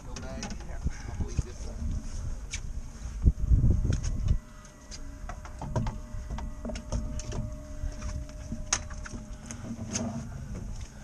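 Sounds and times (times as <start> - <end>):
fishing gear clicking and knocking: 0.0 - 0.9, 5.2 - 10.9
steady low rumble: 0.0 - 11.0.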